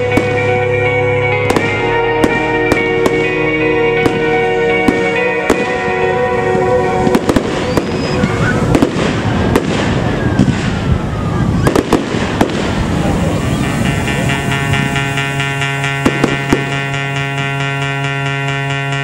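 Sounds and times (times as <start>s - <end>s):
music with held chords: 0.0s - 9.1s, 13.6s - 19.0s
fireworks bursting: 0.0s - 19.0s
fireworks crackling: 0.0s - 19.0s.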